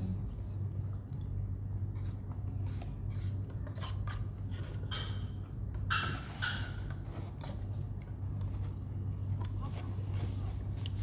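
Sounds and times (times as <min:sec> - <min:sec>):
steady low hum: 0:00.0 - 0:11.0
plastic spoon scraping paper cup: 0:01.9 - 0:05.1.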